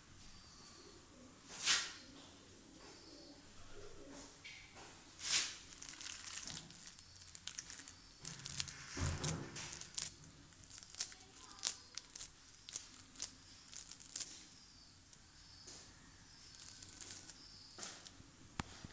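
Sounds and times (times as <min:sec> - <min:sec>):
hand squeezing minced meat: 0:05.2 - 0:15.4, 0:16.4 - 0:18.2.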